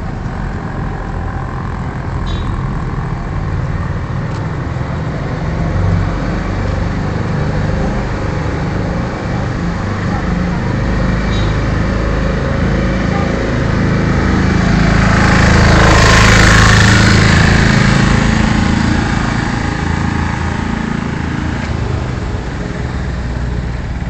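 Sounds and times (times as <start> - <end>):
traffic noise: 0.0 - 24.0
car passing close by: 14.0 - 22.4.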